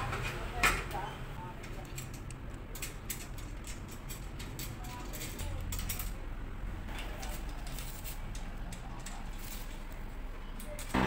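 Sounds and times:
small metal clicks and taps: 1.6 - 6.2.

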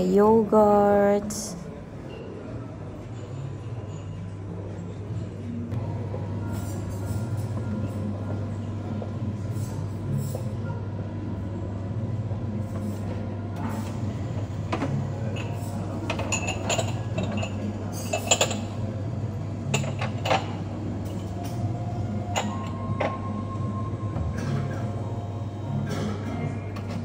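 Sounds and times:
dishes and cutlery clattering: 3.0 - 4.4, 14.7 - 18.9, 19.6 - 21.7, 22.3 - 23.2, 25.8 - 27.0.

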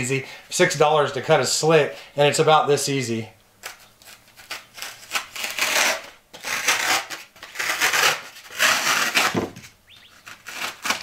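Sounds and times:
knife slitting foam: 4.5 - 9.6, 10.3 - 11.0.

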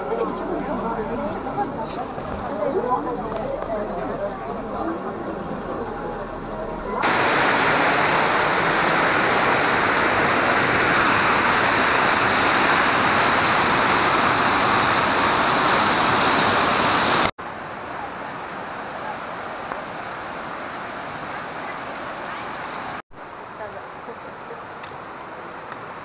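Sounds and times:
water rushing over rocks: 7.0 - 23.6.

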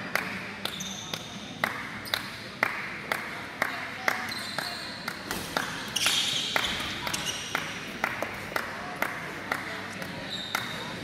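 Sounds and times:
sports shoes squeaking on floor: 0.7 - 1.3, 4.2 - 5.0, 5.9 - 7.5, 10.2 - 11.0.

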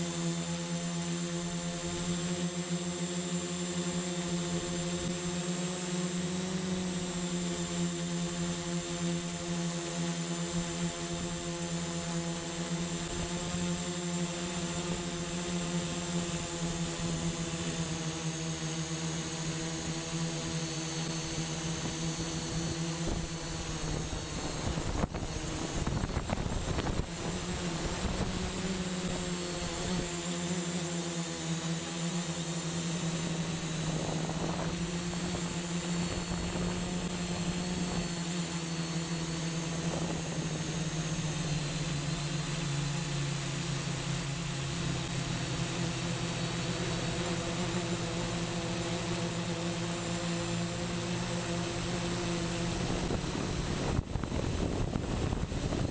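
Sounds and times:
drone motors humming: 0.0 - 55.9
wind buffeting microphone: 23.0 - 28.5, 52.8 - 55.9.

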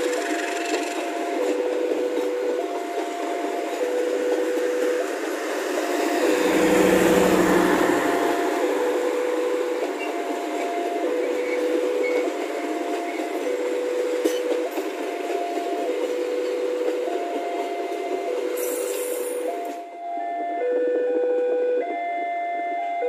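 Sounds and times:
train wheels rumbling on rail: 0.0 - 22.2
level-crossing alarm two-tone signal: 0.0 - 23.0.

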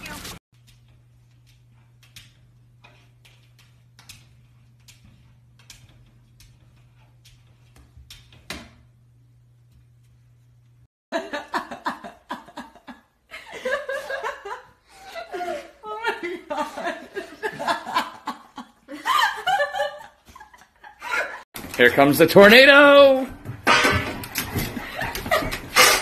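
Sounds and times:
person laughing and talking: 13.3 - 21.4
paw tapping and scratching mirror: 23.6 - 26.0.

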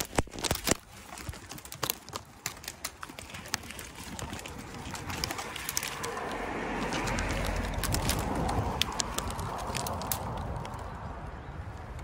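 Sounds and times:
dry twigs snapping: 0.0 - 11.2
branches scraping and rustling: 0.0 - 12.0.

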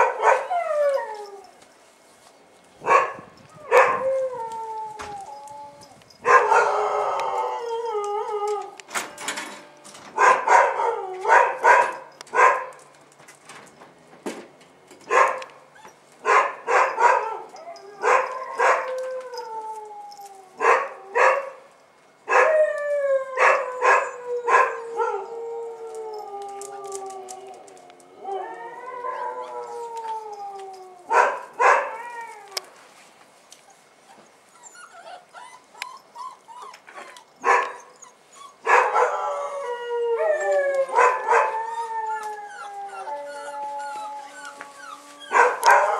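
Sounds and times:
puppies whining: 34.1 - 45.9
puppies yelping: 34.6 - 45.9.

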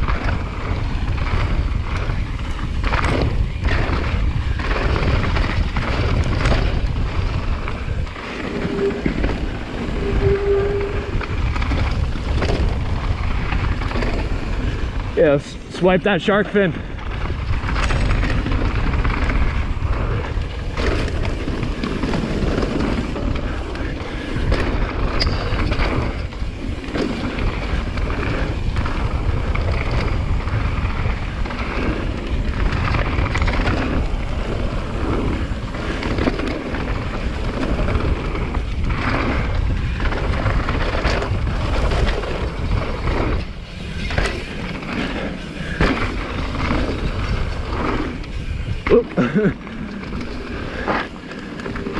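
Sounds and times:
bike clattering over bumps: 0.0 - 51.9
bike tyre noise: 0.0 - 51.9
wind rumble on microphone: 0.0 - 51.9.

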